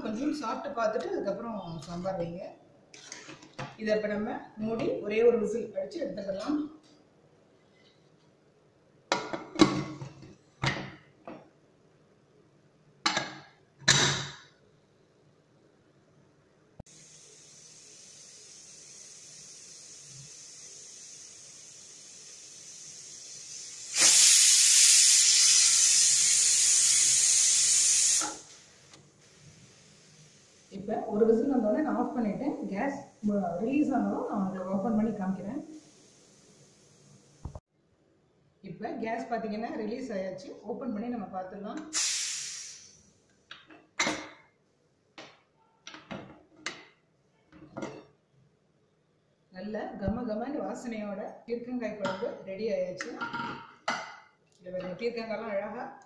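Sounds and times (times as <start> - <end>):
pressure cooker steam hissing: 16.9 - 31.6, 35.7 - 37.4, 41.9 - 43.0.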